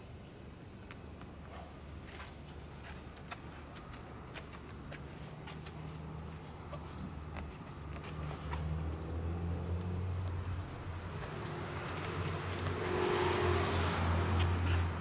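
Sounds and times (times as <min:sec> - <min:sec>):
steady low hum: 0:00.0 - 0:15.0
car passing by: 0:08.0 - 0:15.0.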